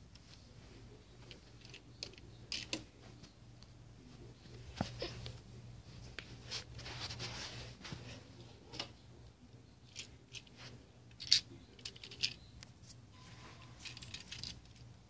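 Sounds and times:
light handling clicks and rustles: 0.0s - 5.4s, 6.0s - 13.0s, 13.6s - 15.0s
faint steady hum: 0.0s - 15.0s.

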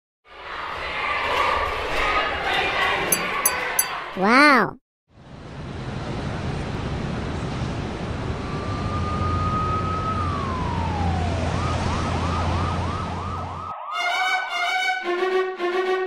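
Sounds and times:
emergency vehicle siren: 8.4s - 15.2s.

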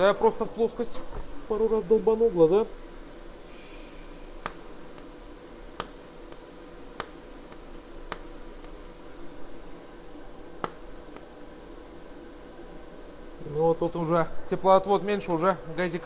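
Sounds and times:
thin high arc whine: 0.0s - 16.0s
welding arc crack: 4.0s - 8.8s.

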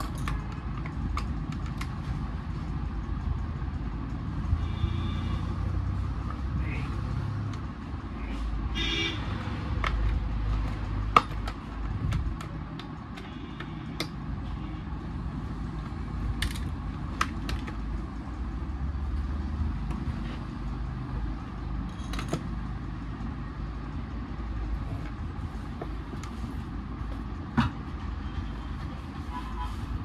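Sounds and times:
screwdriver and parts clinking: 0.0s - 2.2s, 9.8s - 13.4s, 16.2s - 17.8s, 21.7s - 22.8s.

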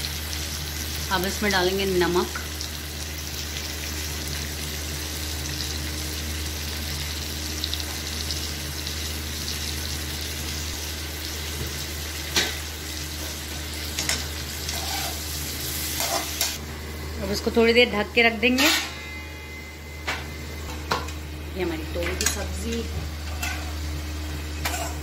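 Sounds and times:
vegetables sizzling in oil: 0.0s - 18.8s, 21.1s - 25.0s
low hum: 16.6s - 24.9s.

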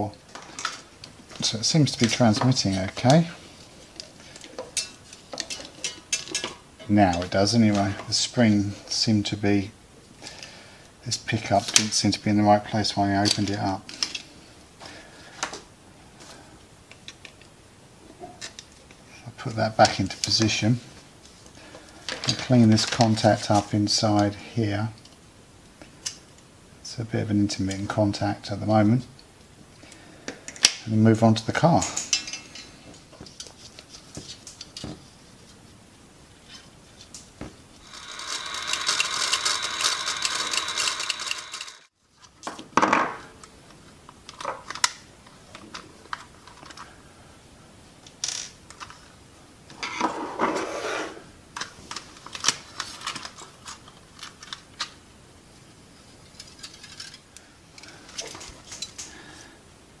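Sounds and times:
toy parts clicking and rattling: 37.8s - 41.9s, 56.3s - 57.2s.

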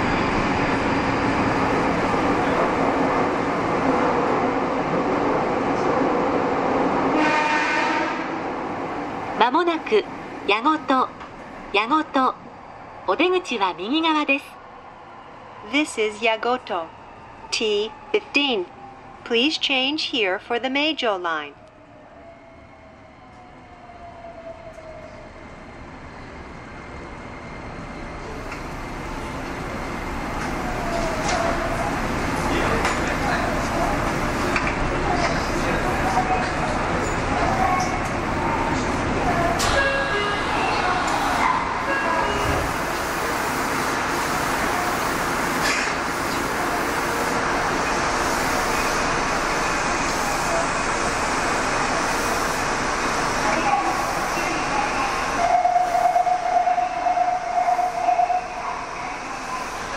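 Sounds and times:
train rail rumble and hiss: 24.4s - 59.9s.

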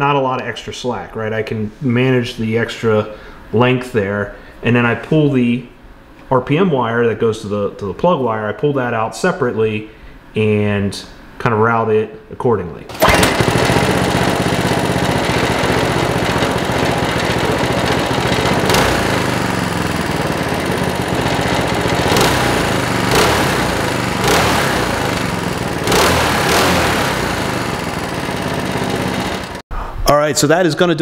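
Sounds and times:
engine throttle blips: 12.9s - 29.6s
go-kart engine idling: 12.9s - 29.6s.

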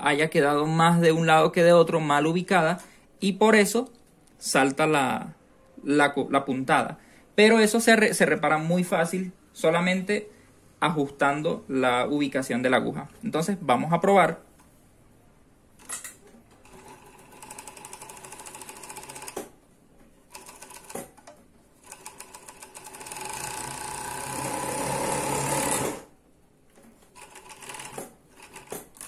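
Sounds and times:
overlock sewing machine chatter: 16.6s - 19.4s, 21.8s - 26.1s, 27.2s - 29.0s.

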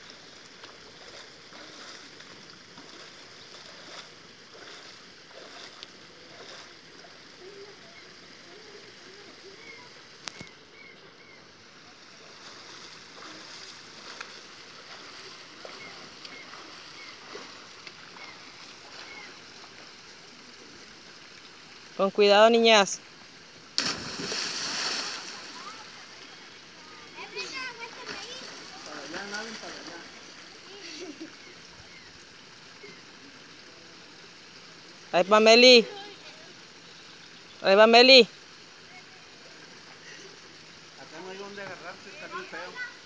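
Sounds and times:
river water rushing: 0.0s - 10.1s, 11.6s - 22.4s, 23.6s - 31.1s
faint distant voices: 3.6s - 21.3s.

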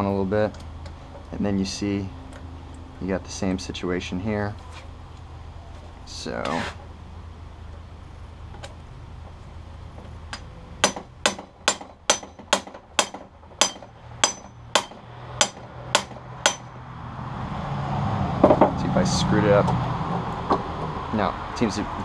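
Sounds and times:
hammer striking metal tool: 10.8s - 16.7s.

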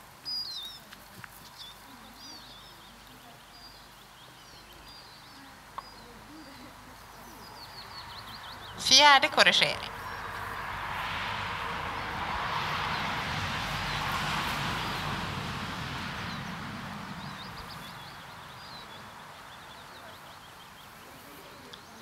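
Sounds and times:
bird chirps: 0.2s - 0.9s, 17.2s - 22.0s
broad rushing noise: 7.5s - 20.3s.

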